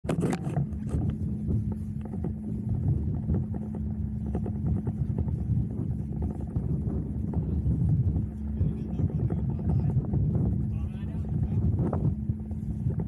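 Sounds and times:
motor boat engine humming: 0.0 - 13.0
wind on microphone: 0.0 - 13.0.

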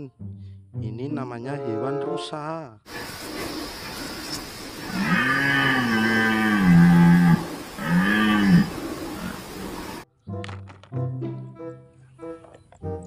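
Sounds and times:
red deer stag roaring: 4.8 - 10.0.

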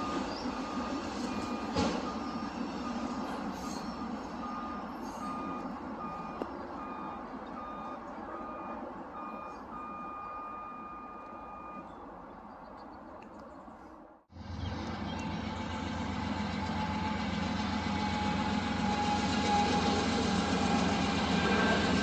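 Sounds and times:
electronic warning beeps: 0.0 - 11.9
steady warning tone: 0.0 - 11.9
passing train rumble: 0.0 - 22.0.

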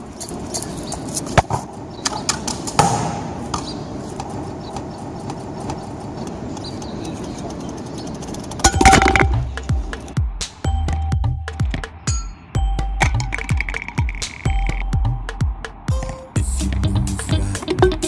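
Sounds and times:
ball hitting can with ringing: 8.6 - 9.5, 13.0 - 14.5
ball knocking on brick paving: 8.6 - 9.7, 13.0 - 14.5.

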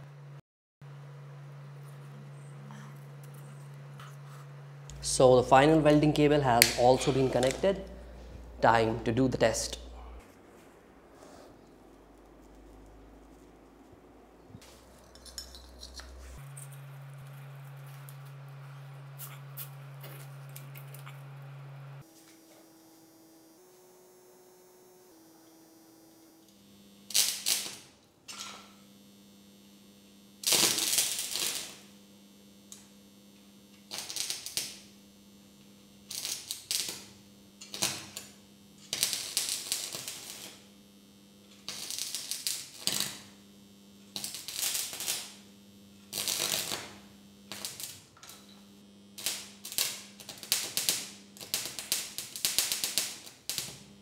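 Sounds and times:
transformer hum: 0.0 - 22.1
arc welding crackling: 0.9 - 54.0.

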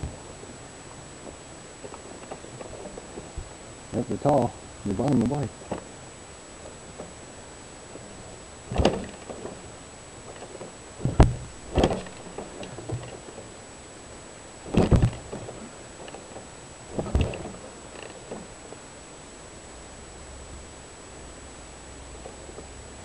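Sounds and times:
thumps from handled motorcycle: 8.7 - 9.7, 10.3 - 13.5, 14.7 - 18.5.

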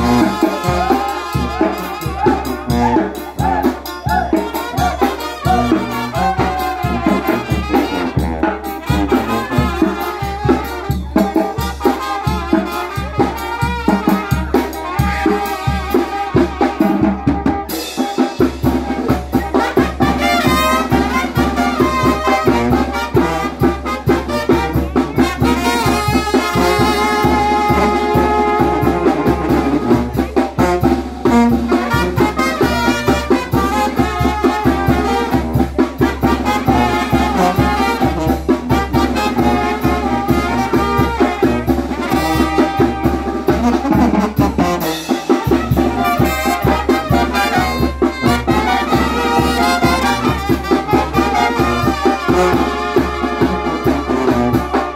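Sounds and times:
brass band playing dance music: 0.0 - 54.9.

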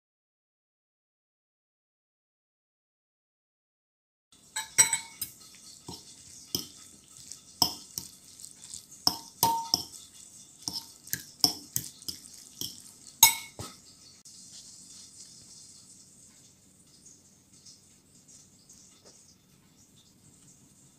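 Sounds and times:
fork clinking on ceramic bowl: 4.6 - 13.8.

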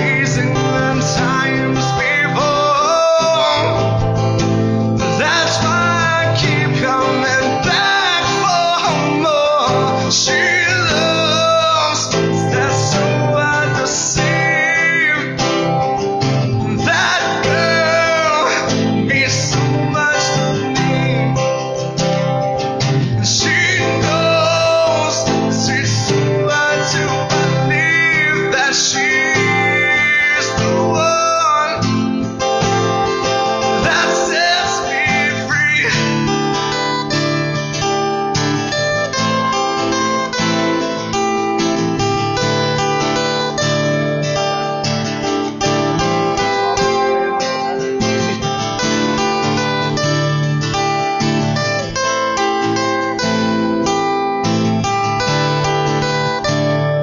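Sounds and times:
man singing: 0.0 - 37.6, 45.8 - 50.2
acoustic guitars strummed: 0.0 - 57.0.

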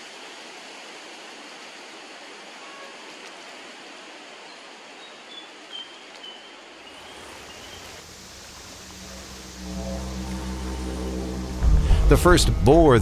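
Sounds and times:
rushing outdoor noise: 0.0 - 13.0
low drone: 8.0 - 13.0.

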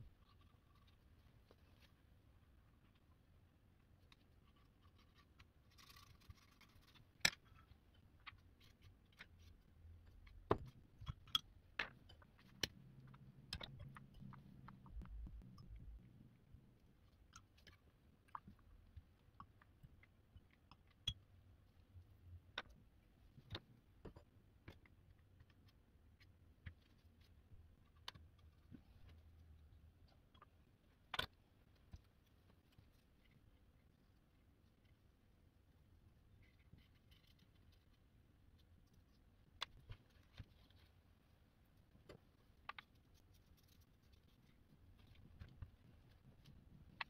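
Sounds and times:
faint clicks and taps: 0.0 - 47.0.

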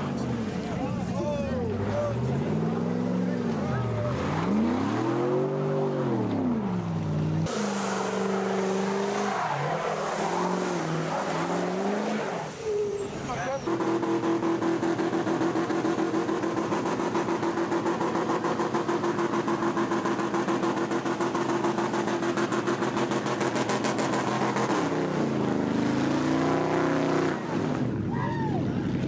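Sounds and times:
truck engine revving high: 0.0 - 29.0
spinning tyres hissing: 7.4 - 14.0.

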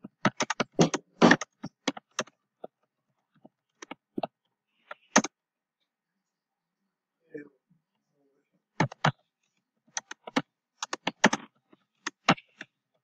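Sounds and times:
typing on a computer keyboard: 0.0 - 2.3, 4.9 - 5.3, 8.8 - 9.2, 9.9 - 12.7.

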